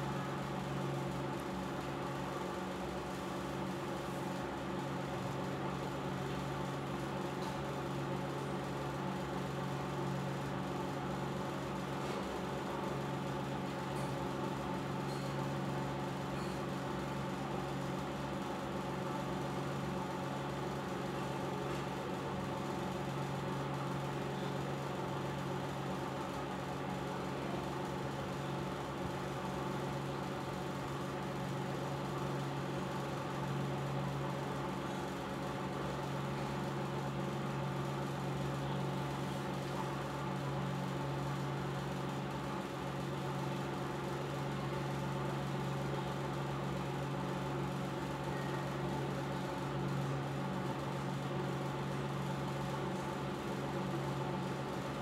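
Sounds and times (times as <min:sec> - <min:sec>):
low machine hum: 0:00.0 - 0:55.0.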